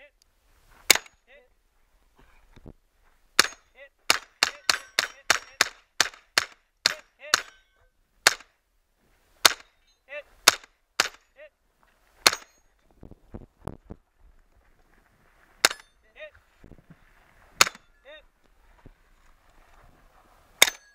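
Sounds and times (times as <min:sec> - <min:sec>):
metallic clangs of steel plates: 0:03.4 - 0:05.8, 0:06.9 - 0:07.9, 0:12.2 - 0:12.8, 0:20.6 - 0:20.9
carbine gunshots: 0:03.4 - 0:07.6, 0:08.2 - 0:08.5, 0:10.4 - 0:11.3, 0:12.2 - 0:12.6.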